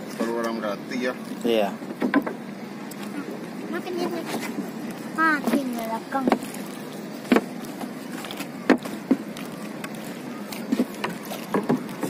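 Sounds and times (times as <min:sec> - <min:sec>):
water lapping against boat: 0:00.0 - 0:12.0
knocks on boat hull: 0:01.8 - 0:02.4, 0:07.3 - 0:07.5.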